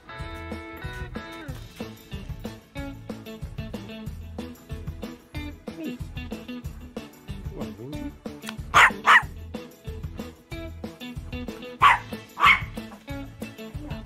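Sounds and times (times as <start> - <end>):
guitar background music: 0.0 - 14.0
small dog barking: 8.7 - 9.3, 11.8 - 12.9.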